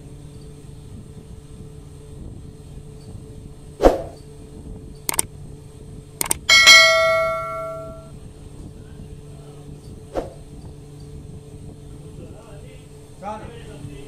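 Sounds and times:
steady background hum: 0.0s - 8.1s
mouse clicks: 6.2s - 6.5s
notification bell ringing: 6.2s - 8.1s.

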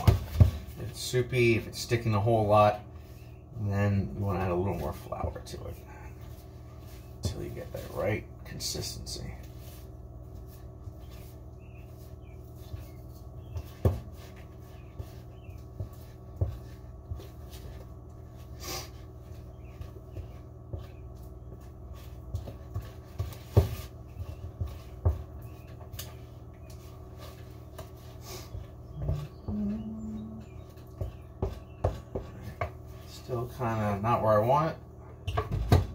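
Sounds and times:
wooden spoon stirring dough: 0.0s - 34.8s
low hum: 24.1s - 33.2s.

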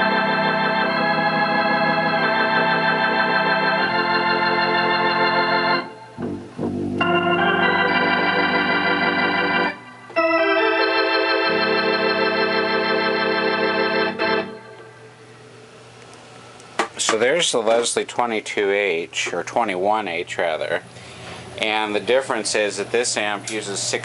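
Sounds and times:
organ chords through rotating speaker: 0.0s - 16.0s
low bass note: 6.2s - 7.4s.

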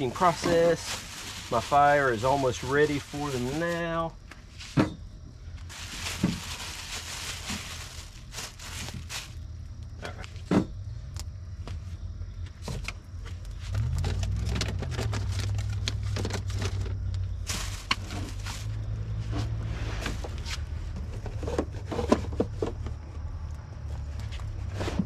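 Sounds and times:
plastic bag rustling: 0.0s - 4.7s, 5.7s - 9.4s, 13.8s - 19.0s
vehicle engine droning: 7.6s - 25.0s.

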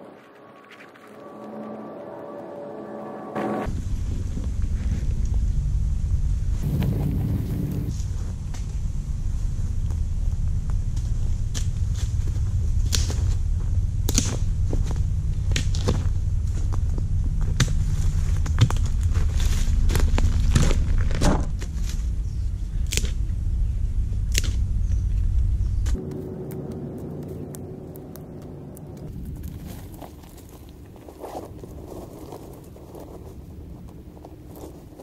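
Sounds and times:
wind rumbling on microphone: 3.7s - 35.0s
footsteps on leaves and gravel: 15.7s - 22.1s, 25.9s - 35.0s.

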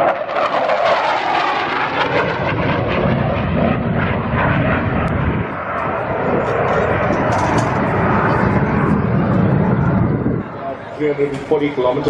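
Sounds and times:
jet flying past: 0.0s - 12.0s.

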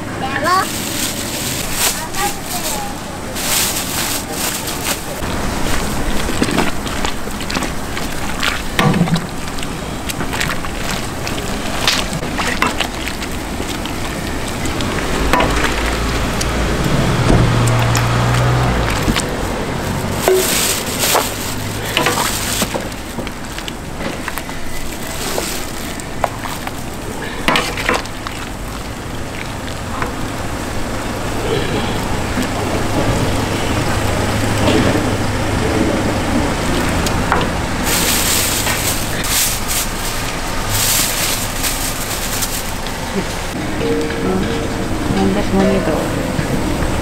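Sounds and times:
soup bubbling in a pot: 5.2s - 32.6s
ladle scraping and clinking: 18.8s - 28.5s, 37.2s - 43.5s.

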